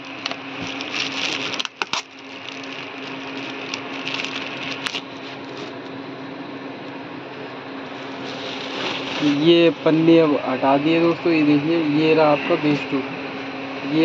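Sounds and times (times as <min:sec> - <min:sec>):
plastic bag rustling: 0:00.5 - 0:05.8, 0:07.9 - 0:09.8.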